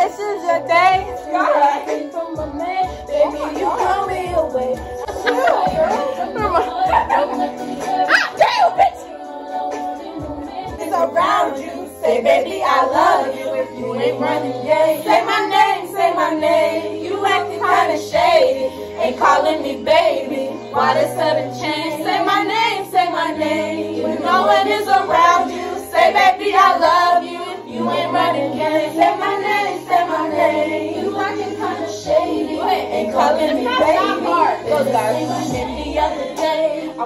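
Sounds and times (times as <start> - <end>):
person singing: 0.0 - 17.6
bass line: 2.4 - 9.0.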